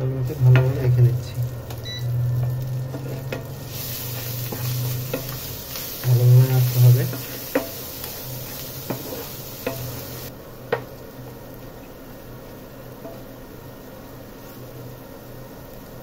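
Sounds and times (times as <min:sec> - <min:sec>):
oil sizzling in a pan: 0:00.0 - 0:16.0
wooden spoon scraping a pan: 0:00.1 - 0:10.3.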